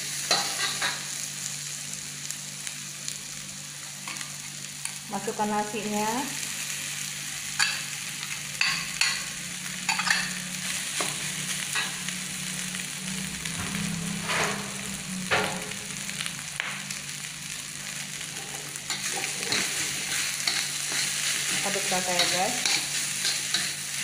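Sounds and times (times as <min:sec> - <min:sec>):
rice sizzling in a wok: 0:00.0 - 0:24.0
metal spatula scraping a pan: 0:18.2 - 0:24.0.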